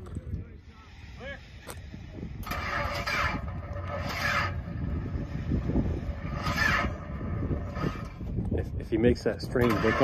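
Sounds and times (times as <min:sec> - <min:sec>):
electric starter cranking engine: 0:01.1 - 0:08.3, 0:09.4 - 0:10.0.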